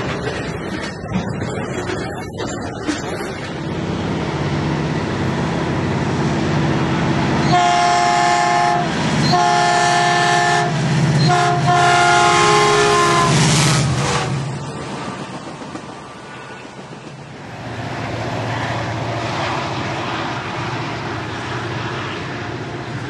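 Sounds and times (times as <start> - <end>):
diesel locomotive engine: 0.0 - 23.0
train horn: 7.4 - 14.4.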